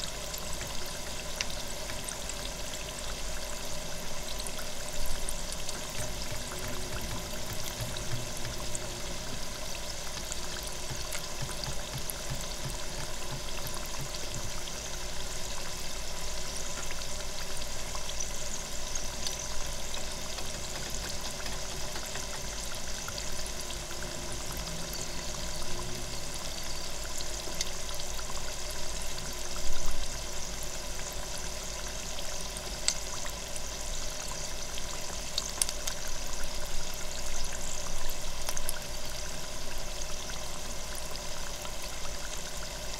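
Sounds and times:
food deep-frying in oil: 0.0s - 42.9s.

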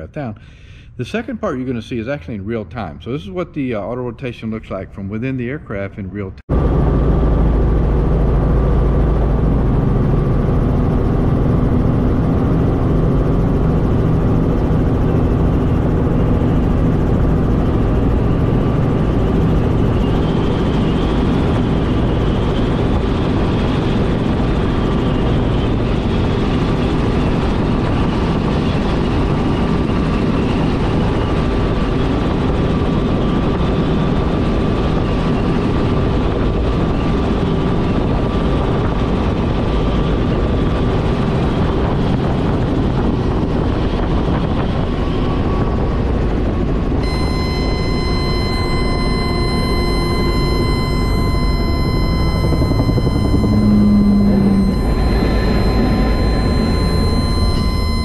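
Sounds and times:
helicopter rotor and engine drone: 0.0s - 58.0s
thin steady whine: 6.5s - 58.0s
faint wavering high tone: 47.0s - 58.0s.

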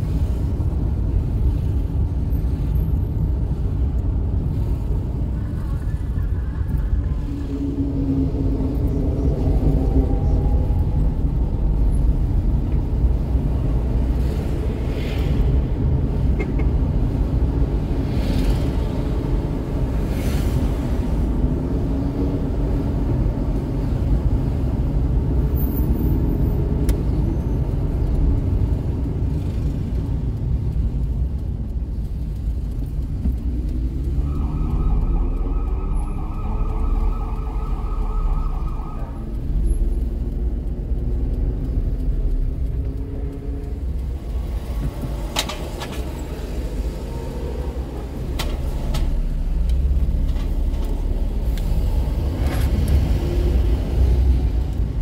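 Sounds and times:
car engine and tyre rumble: 0.0s - 55.0s
siren: 33.9s - 39.7s.

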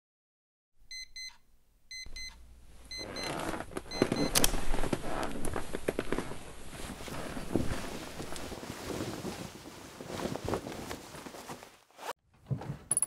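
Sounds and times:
alarm clock beeping: 0.9s - 4.4s
rustling with knocks and clatter: 3.1s - 13.0s.

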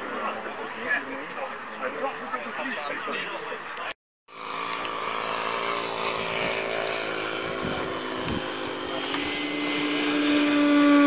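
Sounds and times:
model aircraft engine running: 4.3s - 11.0s.

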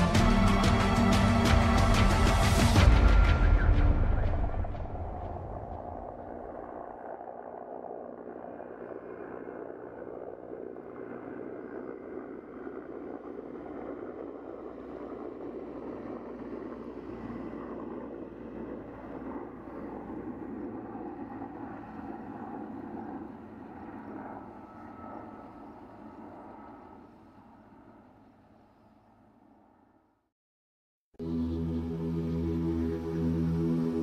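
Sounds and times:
helicopter rotors droning: 0.0s - 30.2s.

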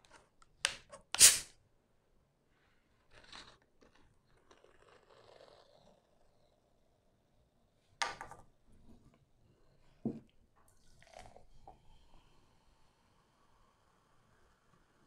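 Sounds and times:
carbonation hissing: 1.2s - 1.5s.

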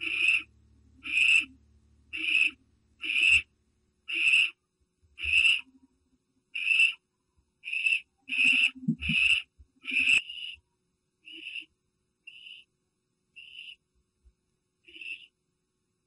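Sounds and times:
owl rasping calls: 0.0s - 3.5s, 4.1s - 4.6s, 5.2s - 5.8s, 6.5s - 7.0s, 7.6s - 10.6s, 11.2s - 11.7s, 12.3s - 12.7s, 13.4s - 13.8s, 14.8s - 15.4s.

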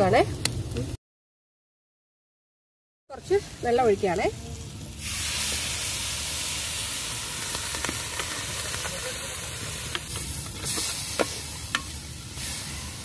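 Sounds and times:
sauce sizzling in a pot: 3.1s - 13.0s.

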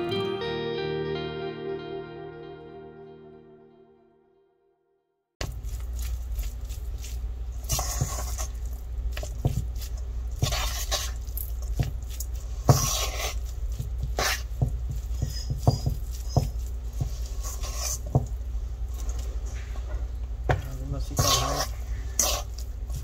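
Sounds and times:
steady low hum: 5.4s - 23.0s
fork scraping a steel bowl: 7.0s - 8.6s, 9.9s - 11.3s, 12.1s - 14.5s, 15.1s - 18.1s, 21.1s - 23.0s.

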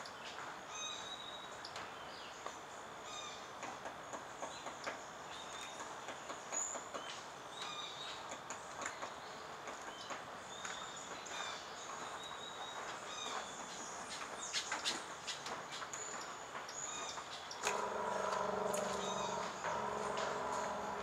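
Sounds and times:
insects: 10.5s - 21.0s.

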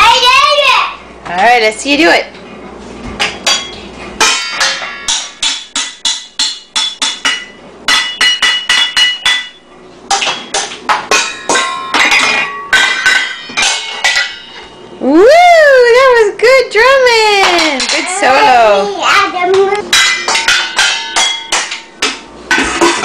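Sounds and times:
spoons banging on metal bowls: 3.4s - 14.9s, 17.4s - 18.6s, 19.4s - 23.0s.

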